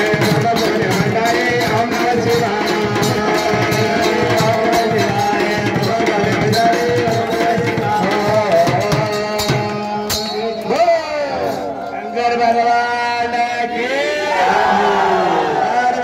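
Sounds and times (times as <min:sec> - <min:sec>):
voices singing a chant: 0:00.0 - 0:09.6, 0:12.6 - 0:16.0
hand drums beating: 0:00.0 - 0:10.8.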